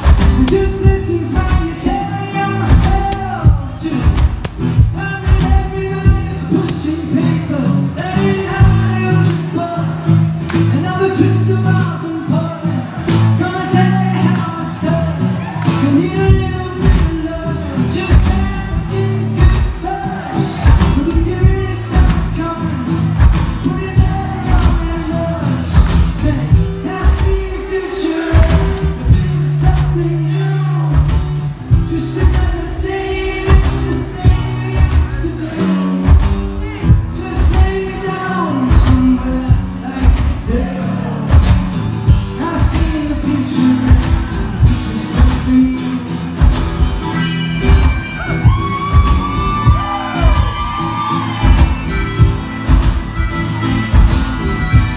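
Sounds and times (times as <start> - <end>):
man singing lead: 0.0 - 52.9
steady drum beat: 0.0 - 54.9
strummed acoustic guitar: 0.0 - 54.9
tambourine: 2.8 - 12.3, 20.8 - 22.4, 28.5 - 30.0, 31.1 - 35.3.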